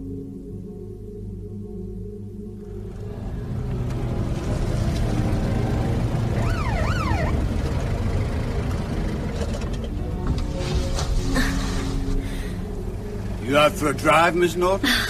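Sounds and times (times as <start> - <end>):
car engine running: 2.6 - 15.0
police siren wailing: 2.8 - 8.8.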